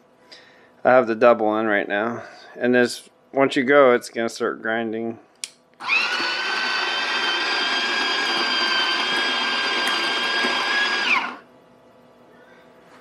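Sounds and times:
coffee grinder grinding beans: 5.8s - 11.4s.

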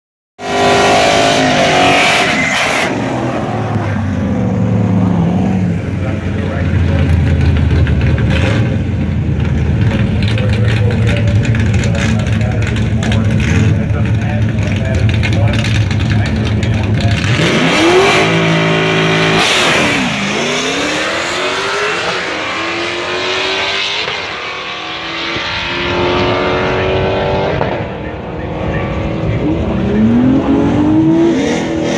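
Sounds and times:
car engine revving: 0.4s - 31.9s
low lumpy engine rumble: 3.6s - 17.3s.

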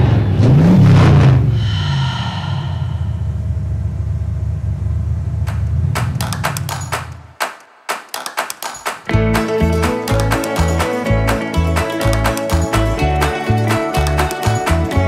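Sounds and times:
steady low drone: 1.5s - 7.0s
sharp taps: 5.5s - 9.1s
background music: 5.5s - 15.0s.

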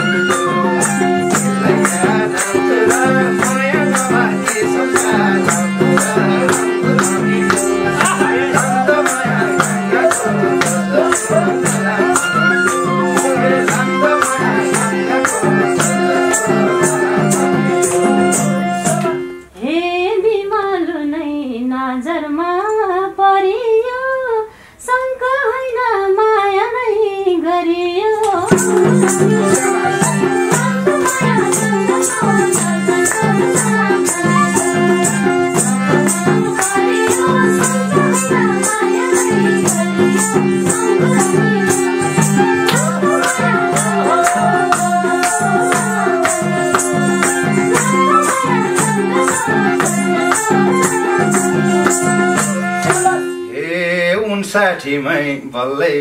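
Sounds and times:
group singing: 0.0s - 19.4s, 28.3s - 53.4s
jingling rattle beat: 0.0s - 19.4s, 28.5s - 53.4s
harmonium chords: 0.0s - 19.6s, 28.5s - 54.4s
solo voice singing: 1.6s - 24.2s, 28.3s - 54.2s.

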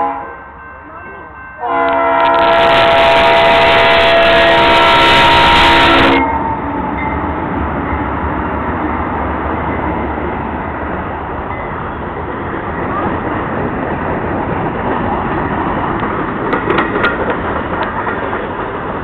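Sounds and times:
diesel locomotive rumbling: 0.0s - 19.0s
wheels on rails: 6.2s - 19.0s.

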